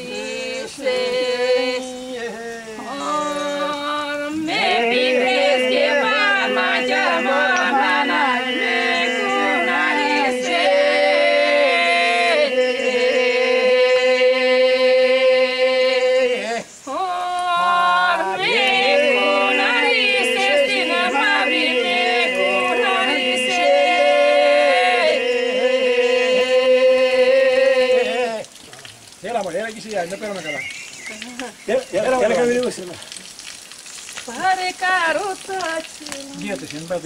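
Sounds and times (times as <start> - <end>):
group singing unaccompanied: 0.0 - 28.5.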